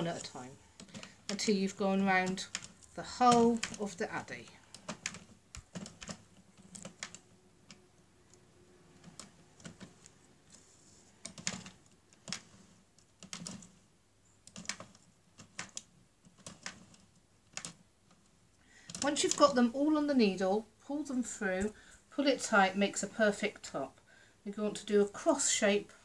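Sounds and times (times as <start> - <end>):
knitting machine plastic clicks: 0.8 - 10.2, 11.2 - 13.8, 14.4 - 19.5.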